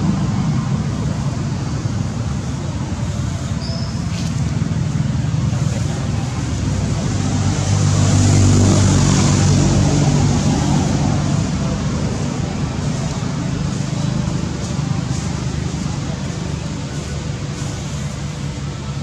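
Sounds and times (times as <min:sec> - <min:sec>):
low background noise: 0:00.0 - 0:19.0
vehicle engine passing: 0:04.5 - 0:19.0.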